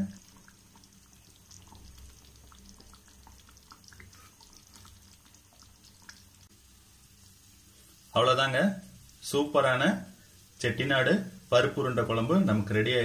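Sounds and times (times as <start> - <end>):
curry bubbling pops: 0.0 - 6.6.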